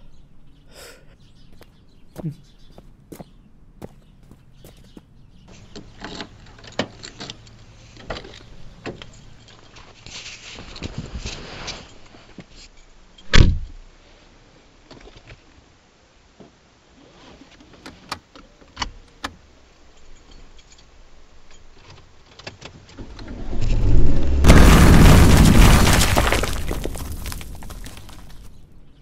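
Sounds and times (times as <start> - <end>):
heavy thump: 23.0 - 28.5
loud crash: 23.0 - 28.5.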